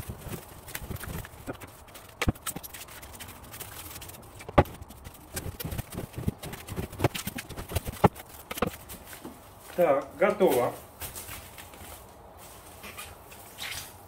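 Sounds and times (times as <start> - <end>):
stretch film crackling and rustling: 0.0 - 9.8.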